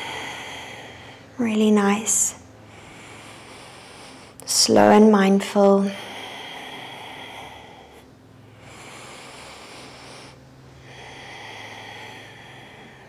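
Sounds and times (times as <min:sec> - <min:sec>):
woman breathing slowly: 0:00.0 - 0:04.6, 0:05.6 - 0:13.0.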